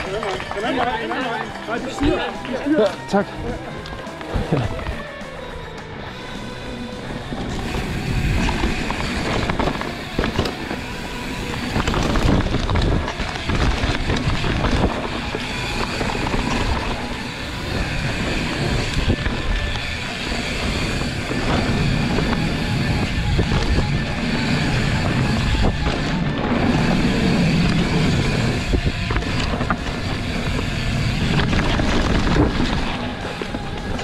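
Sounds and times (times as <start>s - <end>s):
bike rumbling and rattling: 0.0s - 34.0s
wind buffeting microphone: 6.8s - 34.0s.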